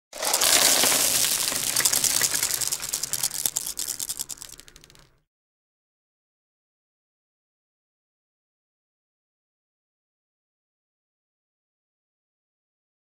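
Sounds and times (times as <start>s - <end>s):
dense clatter of rapid clicks: 0.2s - 5.1s.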